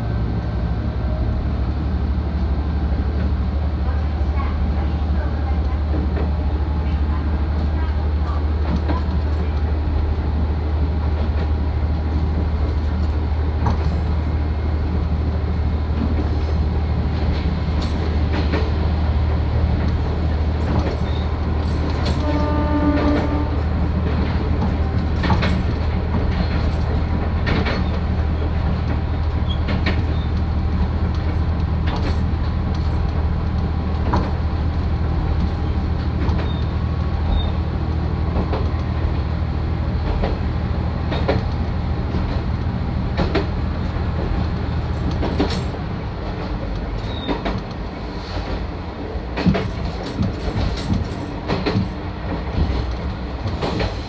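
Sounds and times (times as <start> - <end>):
wheels clicking over rail joints: 17.2 - 54.0.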